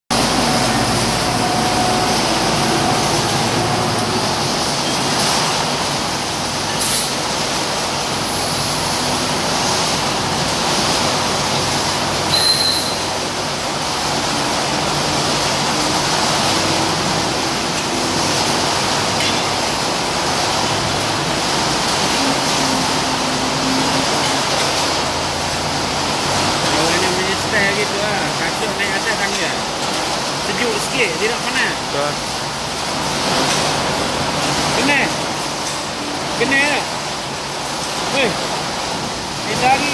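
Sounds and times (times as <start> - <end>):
diesel engine idling: 0.1 - 5.0.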